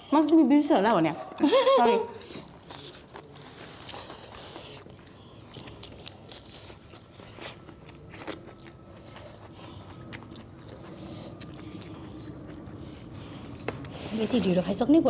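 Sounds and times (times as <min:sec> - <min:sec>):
food crunching: 0:02.2 - 0:14.6
chewing: 0:02.2 - 0:14.7.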